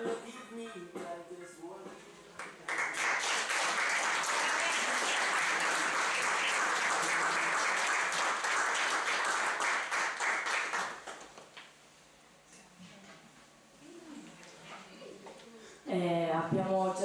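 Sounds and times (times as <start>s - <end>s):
audience applauding: 2.4s - 11.5s.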